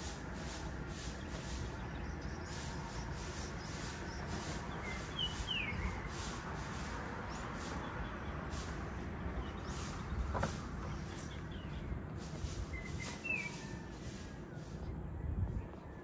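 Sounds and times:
bird whistling: 4.9 - 6.1, 12.7 - 13.9.

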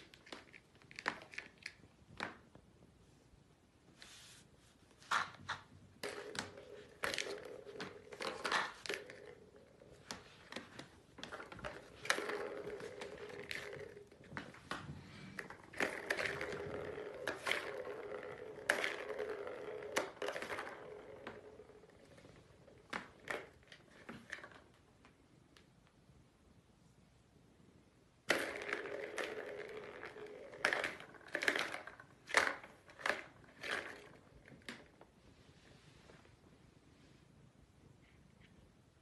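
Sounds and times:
clicks and knocks of balls: 0.0 - 2.6, 5.1 - 25.2, 28.2 - 35.1
plastic balls rolling on track: 5.1 - 24.8, 28.2 - 35.1.

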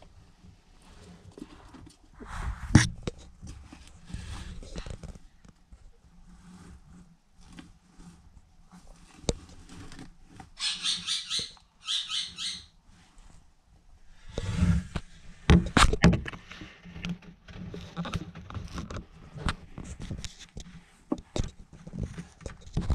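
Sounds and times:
rustling: 0.0 - 11.2, 12.3 - 22.9
mouse squeaking: 10.6 - 12.7.

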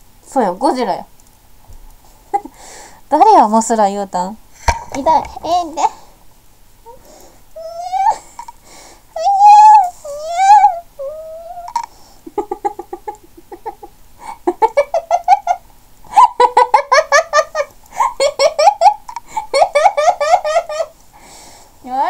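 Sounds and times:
woman giggling: 11.6 - 20.9.

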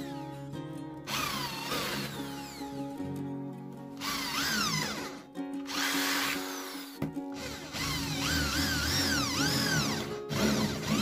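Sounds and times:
electric drill motor whine: 1.1 - 2.8, 4.0 - 11.0.

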